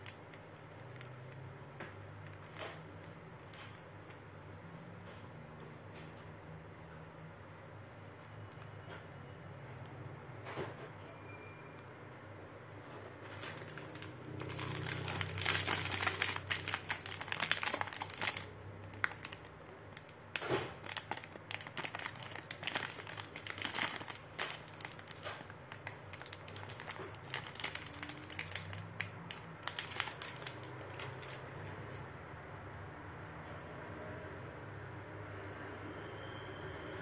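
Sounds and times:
packaging crinkling and rustling: 0:00.0 - 0:04.2, 0:12.8 - 0:31.7.

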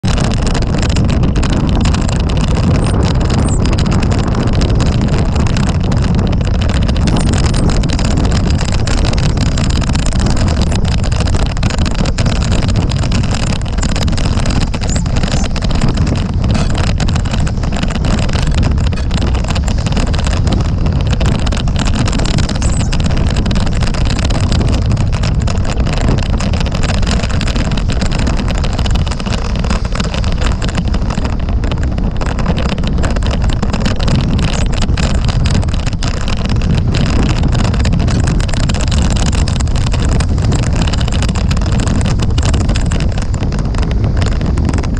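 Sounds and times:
wind buffeting microphone: 0:00.0 - 0:44.9.

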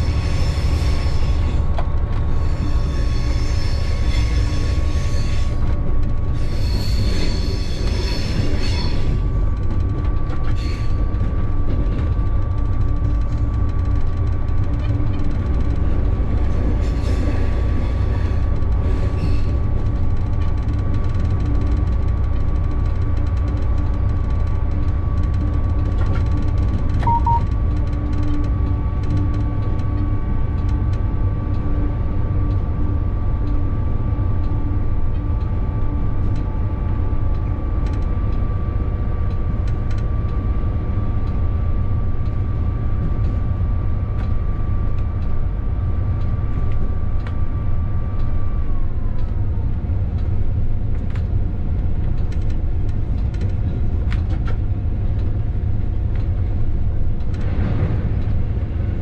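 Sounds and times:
wheel squeal: 0:02.4 - 0:05.6, 0:06.4 - 0:09.1
short beep: 0:27.0 - 0:27.5.

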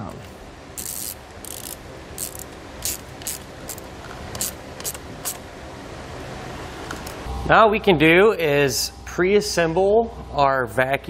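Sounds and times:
ratchet clicking: 0:00.8 - 0:05.4.

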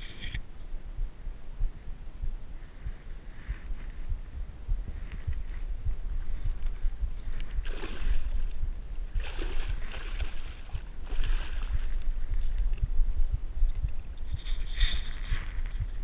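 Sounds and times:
fish splashing in shallow water: 0:07.4 - 0:12.7.

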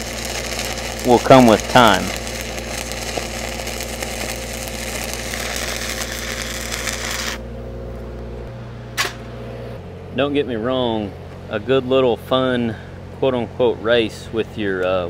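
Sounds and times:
welding arc crackling: 0:00.0 - 0:07.5.

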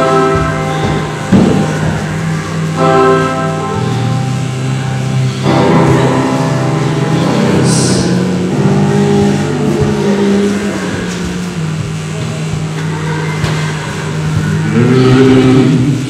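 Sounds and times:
music with low droning notes: 0:00.0 - 0:16.0.

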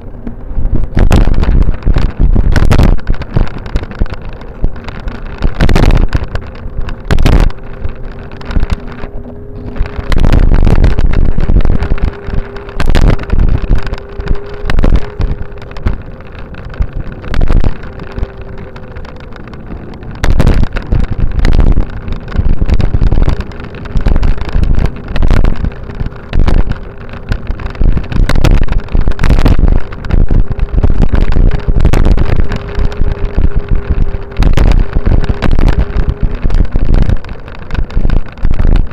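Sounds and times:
faint steady hum: 0:00.0 - 0:38.9
steady rumble: 0:00.0 - 0:38.9
wind buffeting microphone: 0:00.0 - 0:38.9.

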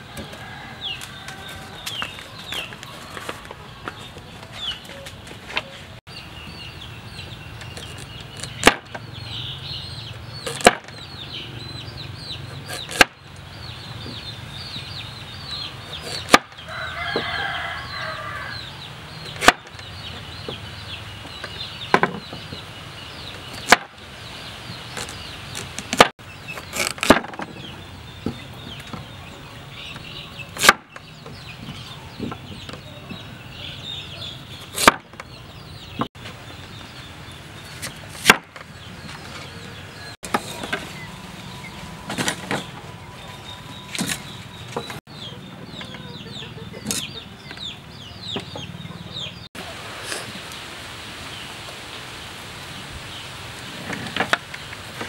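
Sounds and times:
birdsong: 0:00.0 - 0:55.0
cleaver chopping on wooden board: 0:08.6 - 0:09.0, 0:10.5 - 0:11.0, 0:12.7 - 0:13.2, 0:16.0 - 0:16.6, 0:19.4 - 0:19.7, 0:23.7 - 0:24.0, 0:30.6 - 0:31.0, 0:34.7 - 0:35.2, 0:38.2 - 0:38.6.

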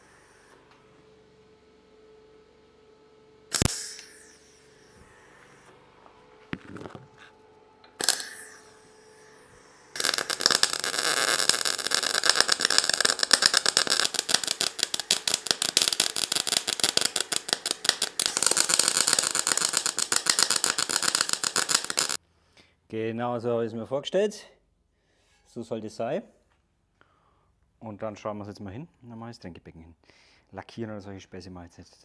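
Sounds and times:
sharp click: 0:03.5 - 0:04.3
welder arc crackling: 0:03.5 - 0:05.7, 0:07.9 - 0:22.2.

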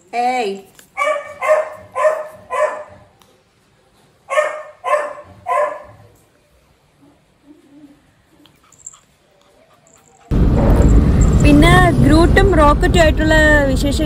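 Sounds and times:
puppy barking: 0:01.0 - 0:03.1, 0:04.3 - 0:06.1.

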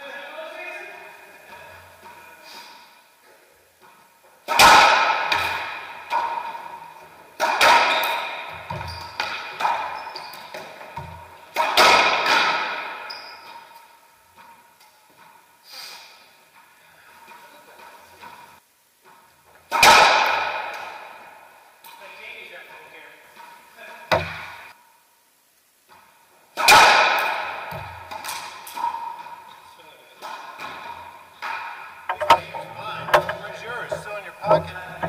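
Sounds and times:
racquetball hits echoing: 0:03.8 - 0:14.7, 0:19.6 - 0:21.4, 0:23.4 - 0:24.8, 0:26.6 - 0:35.0.

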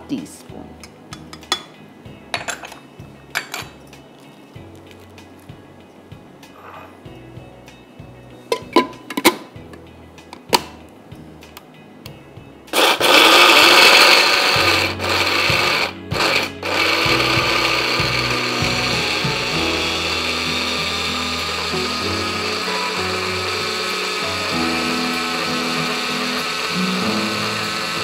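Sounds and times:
electric grinder whirring: 0:12.8 - 0:28.0.

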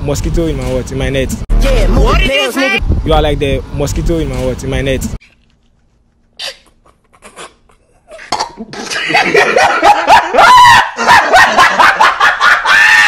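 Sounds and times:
man laughing loudly: 0:08.2 - 0:13.0.

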